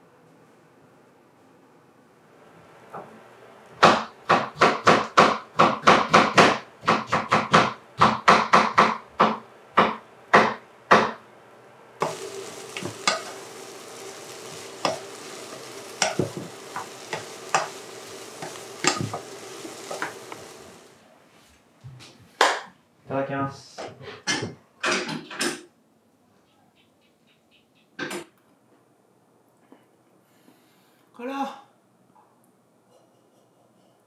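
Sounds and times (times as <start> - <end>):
knife chopping on cutting board: 3.8 - 11.2
vegetables sizzling in a pot: 12.0 - 21.2.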